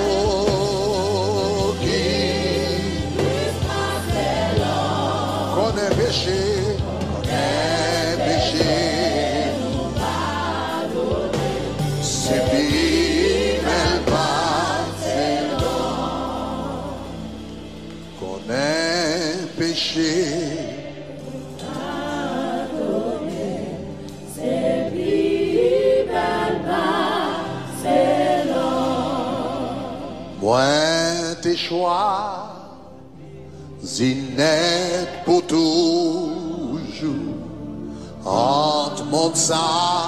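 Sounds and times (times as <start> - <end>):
man singing gospel song: 0.0 - 15.9, 18.2 - 21.0, 30.3 - 32.9, 33.8 - 40.0
sustained keyboard chords: 0.0 - 31.2
choir singing: 0.0 - 32.6, 33.2 - 40.0.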